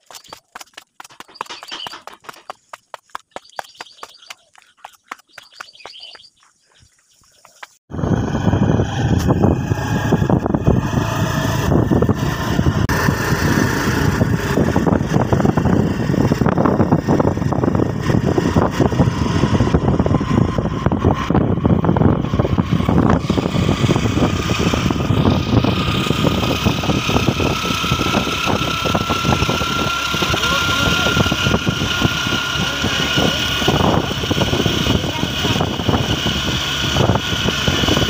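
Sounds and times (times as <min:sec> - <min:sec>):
vehicle engine running: 0:01.0 - 0:06.0, 0:07.9 - 0:38.0
road and wind noise in vehicle: 0:07.9 - 0:38.0.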